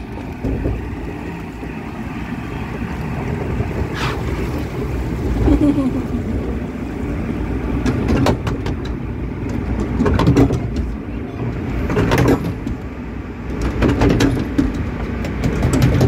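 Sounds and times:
low mechanical rumble: 0.0 - 16.0
lift ramp clacks: 7.8 - 16.0
faint voices: 10.5 - 11.9.

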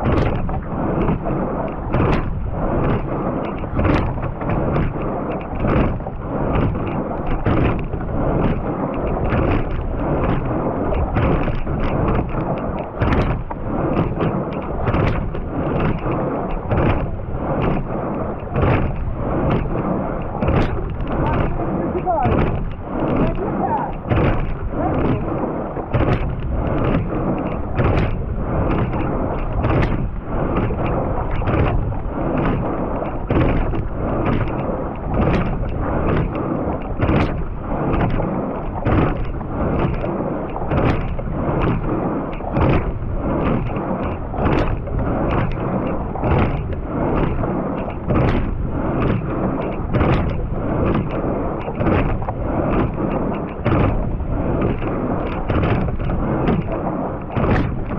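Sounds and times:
water rushing along hull: 0.0 - 57.9
wind: 0.0 - 57.9
oar clunking in oarlock: 18.5 - 23.2, 26.0 - 57.9.

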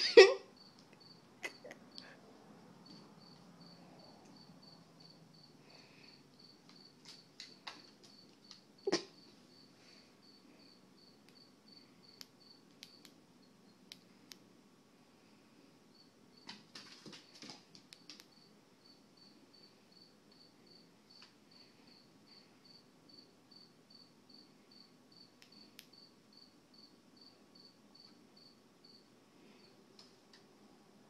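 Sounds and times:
cricket chirping: 0.0 - 13.9, 15.9 - 16.6, 17.3 - 29.8
faint sharp clicks: 13.9 - 14.4, 25.4 - 25.9.

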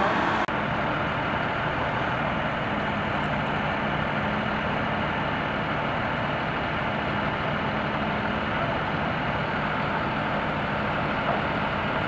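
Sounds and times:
heavy truck engine idling: 0.0 - 12.0.

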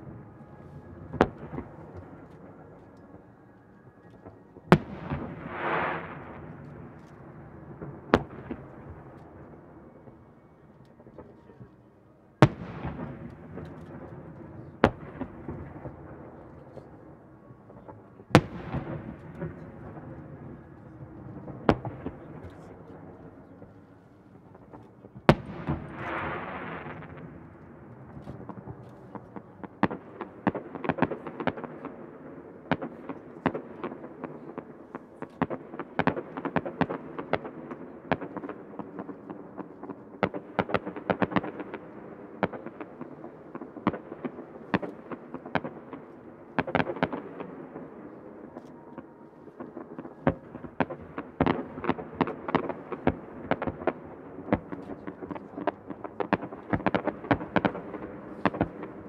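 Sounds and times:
fireworks popping and cracking: 49.0 - 59.0.

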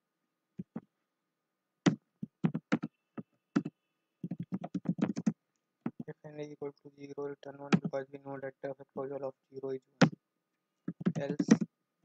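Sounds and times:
typing on computer keyboard: 3.6 - 5.3, 10.9 - 11.7.

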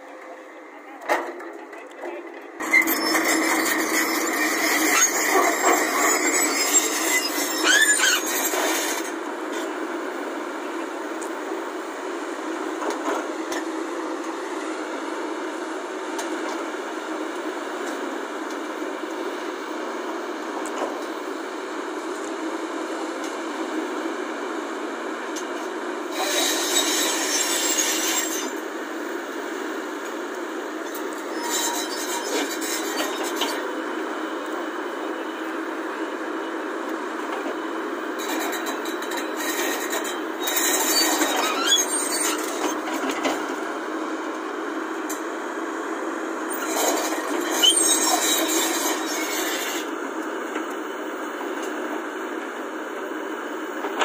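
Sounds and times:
high metallic squeals: 2.6 - 9.0, 31.3 - 33.6, 47.4 - 49.8.

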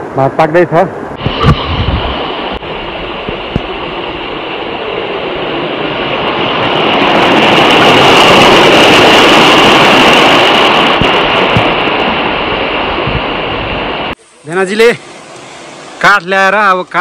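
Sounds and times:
water rushing over rocks: 1.2 - 14.2.

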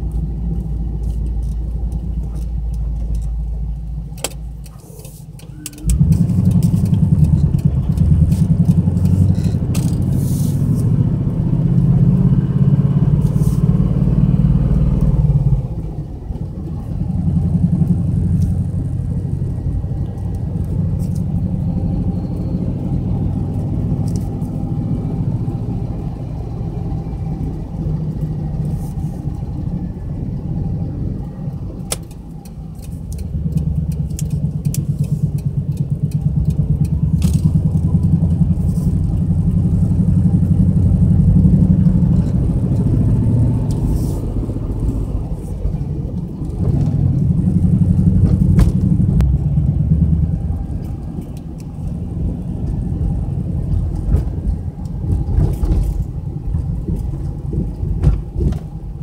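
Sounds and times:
car engine and road noise: 0.0 - 59.0.

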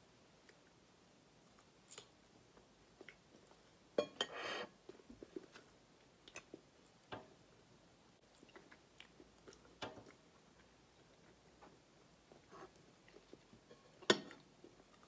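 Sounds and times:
faint chewing: 1.4 - 3.8, 4.8 - 7.1, 8.2 - 15.0.

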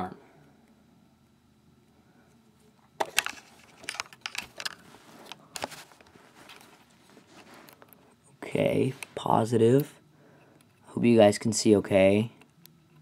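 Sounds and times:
rustling: 3.2 - 8.1.

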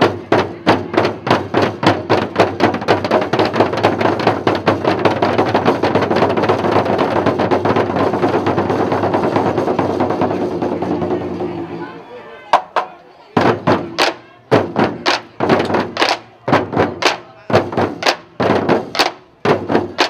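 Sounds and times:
drum roll: 0.0 - 11.9, 12.5 - 20.0.

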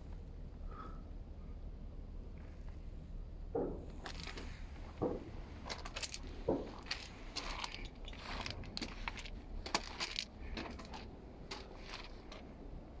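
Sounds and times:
low steady rumble: 0.0 - 13.0
footsteps crunching on gravel: 4.0 - 12.5.

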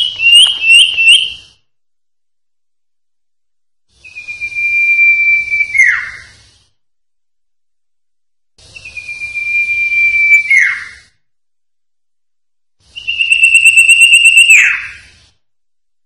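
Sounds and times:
bird whistling long notes: 0.0 - 1.6, 4.0 - 6.5, 8.6 - 11.1, 12.8 - 15.2.

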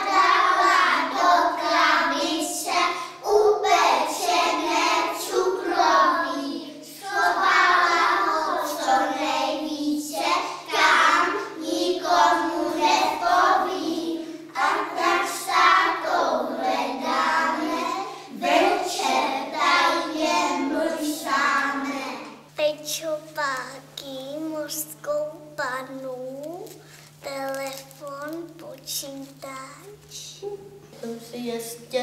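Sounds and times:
young children singing: 0.0 - 22.5.

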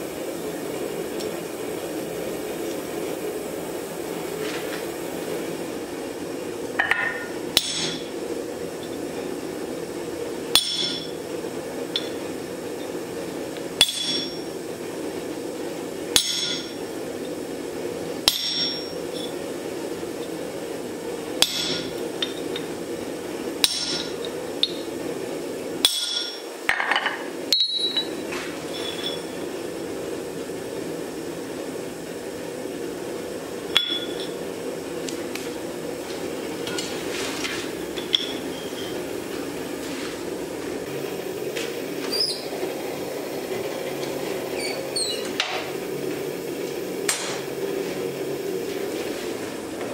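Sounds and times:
steady hum: 0.0 - 49.9
steel striking anvil: 6.8 - 8.1, 10.5 - 11.1, 13.8 - 14.4, 16.2 - 16.8, 18.3 - 19.0, 21.4 - 22.4, 23.6 - 24.8, 25.8 - 26.4.

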